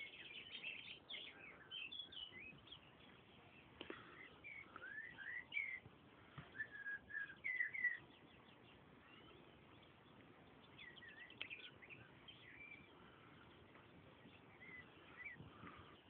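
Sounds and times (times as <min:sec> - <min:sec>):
bird twittering trill: 0:00.0 - 0:05.9, 0:06.5 - 0:16.0
songbird whistled phrases: 0:04.4 - 0:05.8, 0:06.5 - 0:08.0.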